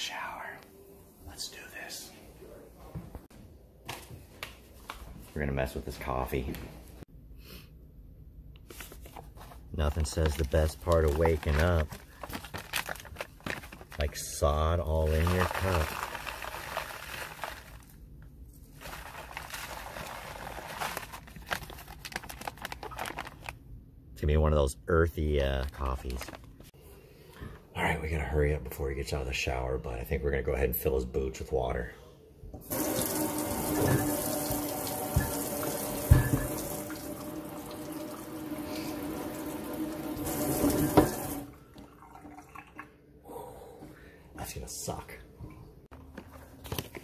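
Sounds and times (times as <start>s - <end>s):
bag crinkling: 10.3s - 18.0s, 18.6s - 23.6s
faucet running water into boot: 32.6s - 41.5s.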